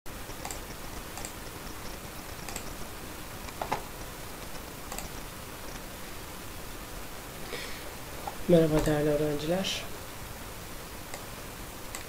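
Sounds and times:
microphone hiss: 0:00.1 - 0:12.0
computer mouse clicks: 0:00.3 - 0:02.8, 0:04.9 - 0:05.8.

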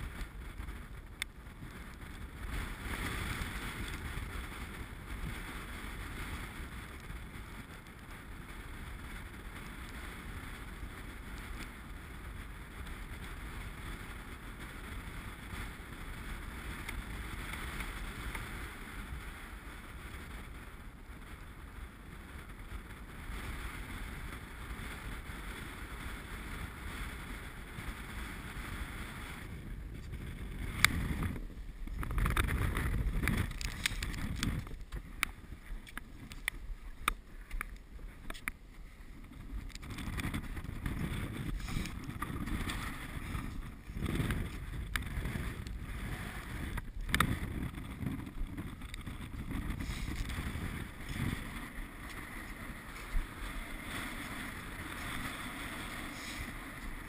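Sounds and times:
wind buffeting microphone: 0:00.0 - 0:57.0
knocks and scrapes on snow and rock: 0:29.9 - 0:57.0.

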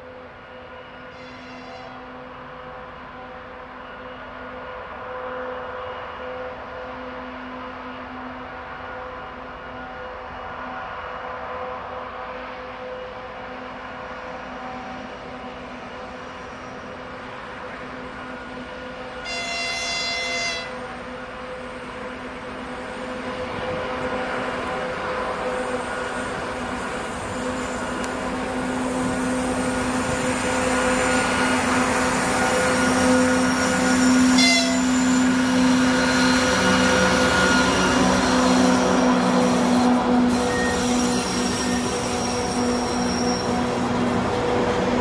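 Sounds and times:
diesel locomotive engine drone: 0:00.0 - 0:45.0
locomotive horn blast: 0:01.1 - 0:02.0, 0:19.2 - 0:21.0, 0:34.2 - 0:35.4.

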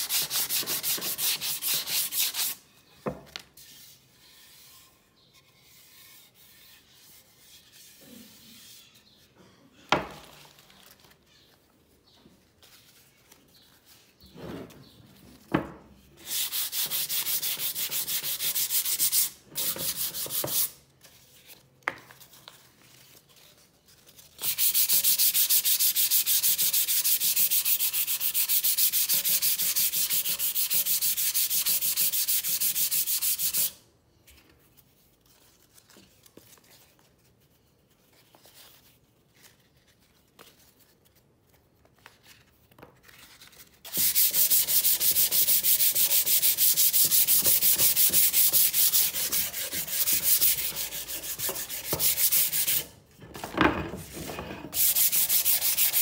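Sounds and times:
hand sanding wood: 0:00.0 - 0:02.6, 0:16.2 - 0:20.7, 0:24.4 - 0:33.8, 0:43.9 - 0:52.9, 0:54.7 - 0:56.0.

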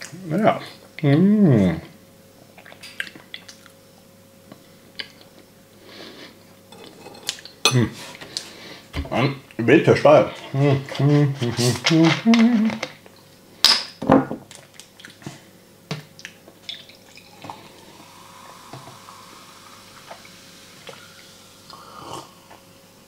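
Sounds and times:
soda fizzing in a glass: 0:16.8 - 0:23.0.

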